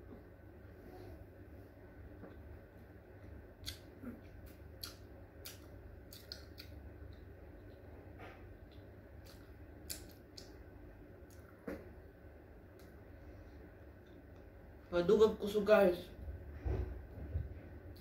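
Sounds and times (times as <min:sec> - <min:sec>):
low steady hum: 0:00.0 - 0:18.0
mouth clicks and smacks chewing: 0:03.6 - 0:07.8, 0:08.6 - 0:10.6.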